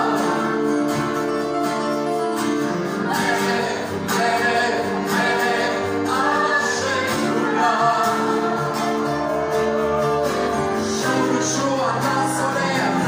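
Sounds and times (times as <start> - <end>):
people singing into microphones: 0.0 - 0.8, 2.9 - 13.0
acoustic guitar: 0.0 - 13.0.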